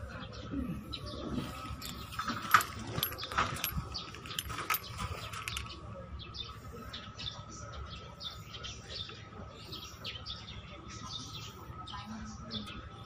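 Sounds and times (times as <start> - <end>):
small birds chirping: 0.0 - 13.0.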